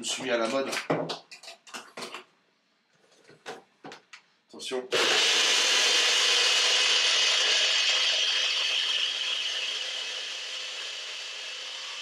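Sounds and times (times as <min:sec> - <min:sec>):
blender whirring: 0:04.9 - 0:12.0.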